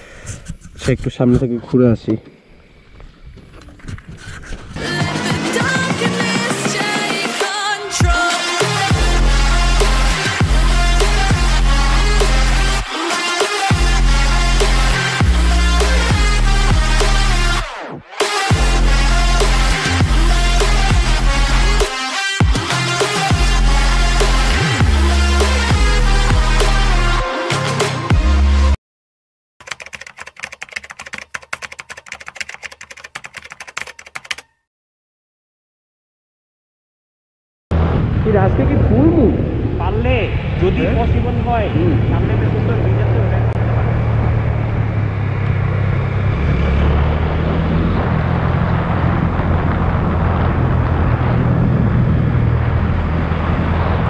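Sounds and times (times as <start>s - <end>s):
wind and road noise: 0.1s - 5.5s, 37.7s - 54.0s
electronic intro music: 4.8s - 28.8s
typing key clicks: 29.6s - 34.6s.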